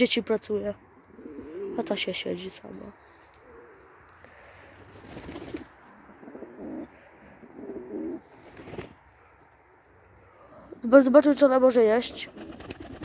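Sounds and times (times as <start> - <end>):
pigeons cooing: 1.1 - 9.3.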